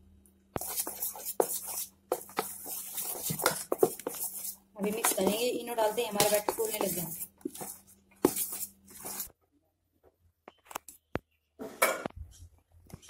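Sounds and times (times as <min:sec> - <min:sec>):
spoon stirring in steel bowl: 0:00.6 - 0:09.3.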